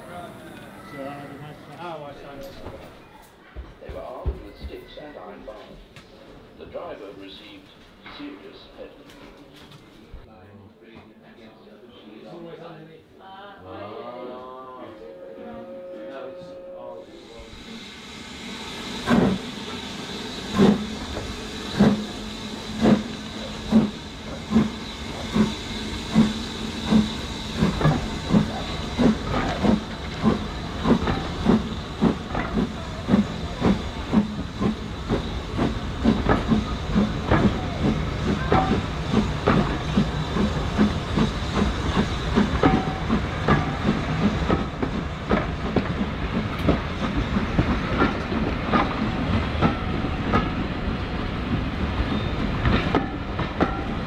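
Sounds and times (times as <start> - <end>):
steam hissing: 17.0 - 54.0
steam locomotive exhaust beats: 17.0 - 54.0.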